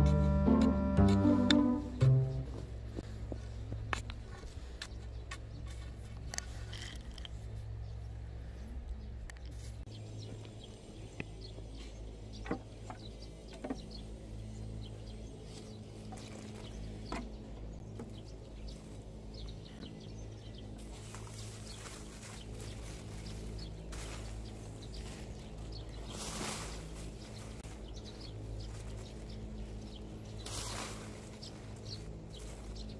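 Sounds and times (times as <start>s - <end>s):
low outdoor rumble: 0.0s - 32.9s
small birds chirping: 2.1s - 32.9s
soft knocks from garden work: 12.4s - 13.9s.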